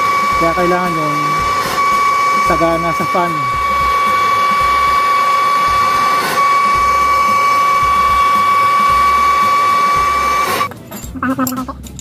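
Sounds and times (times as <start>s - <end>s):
gas torch hissing and whistling: 0.0s - 10.7s.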